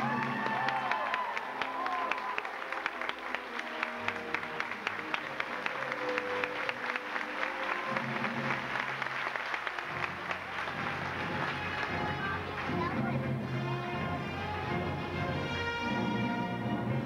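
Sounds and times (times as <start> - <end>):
audience applauding: 0.0 - 12.9
music with held notes: 1.6 - 17.0.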